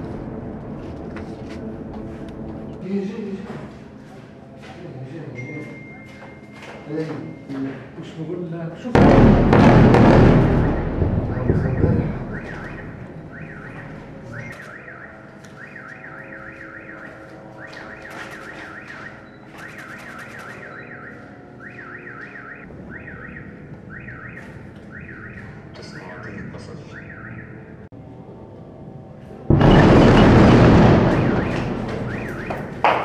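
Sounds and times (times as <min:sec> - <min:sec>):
bomb explosion: 0:08.9 - 0:14.5, 0:29.5 - 0:33.0
car alarms warbling: 0:10.6 - 0:27.8, 0:29.6 - 0:33.0.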